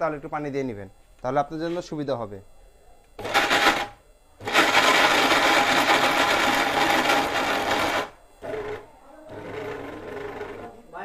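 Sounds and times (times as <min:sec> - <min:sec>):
mixer grinder mincing meat: 0:03.2 - 0:10.8.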